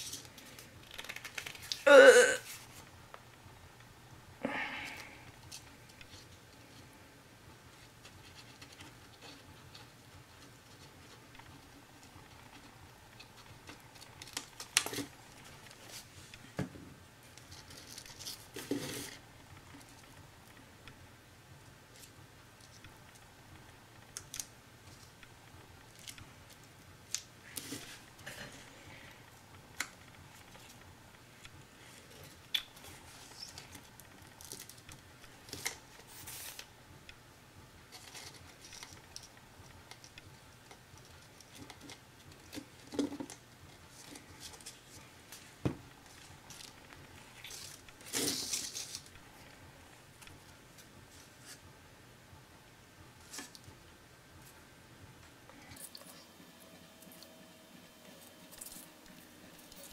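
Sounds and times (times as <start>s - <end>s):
paper pieces tapping and rustling: 0.0s - 1.8s.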